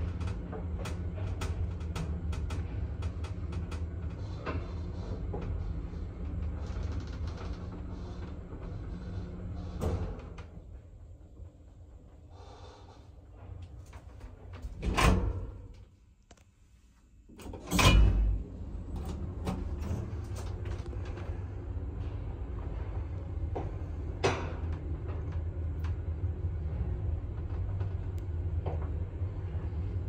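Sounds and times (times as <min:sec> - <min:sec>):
lift doors slamming shut: 0:17.4 - 0:18.5.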